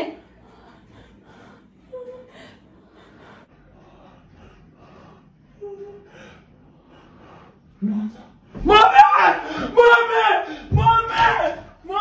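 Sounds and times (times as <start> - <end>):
person panting: 0.2 - 8.6.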